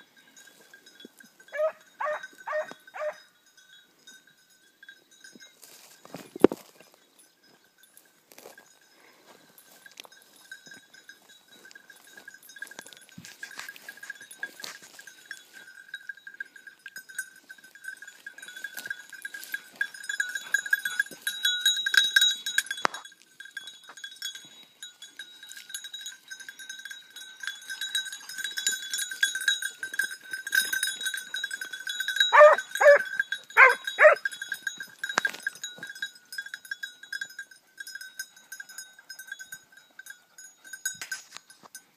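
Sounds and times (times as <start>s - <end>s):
dog bell jingling: 0.0s - 41.9s
dog barking: 1.6s - 3.2s, 32.3s - 34.2s.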